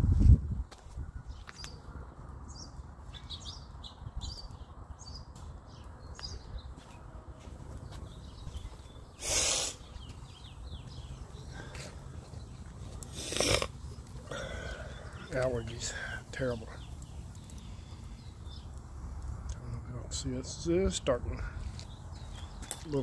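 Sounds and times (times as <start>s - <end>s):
small birds chirping: 0.9s - 23.0s
low outdoor rumble: 9.8s - 23.0s.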